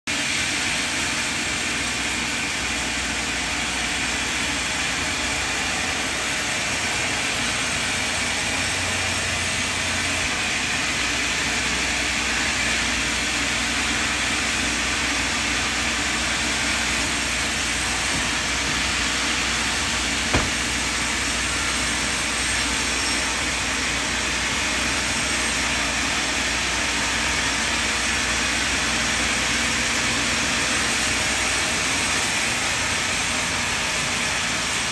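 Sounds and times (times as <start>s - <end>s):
sawmill machinery running: 0.1s - 34.9s
sharp knock: 20.2s - 20.9s.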